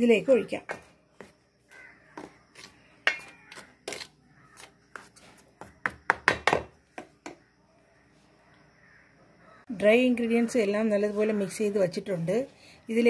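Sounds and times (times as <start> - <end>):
spoon knocking in metal bowl: 3.0 - 4.0.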